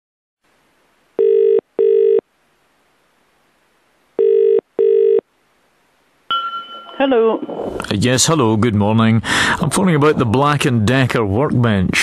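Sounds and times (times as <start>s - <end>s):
telephone ringing tone: 1.2s - 2.2s, 4.2s - 5.2s.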